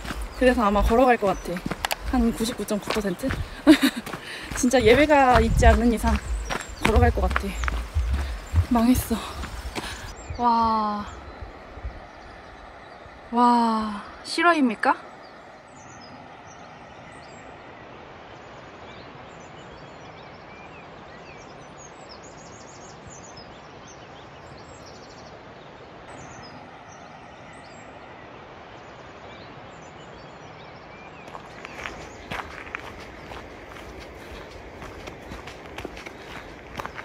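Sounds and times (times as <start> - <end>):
footsteps on path: 0.0 - 10.2, 31.2 - 37.0
steady rushing background noise: 0.0 - 10.2.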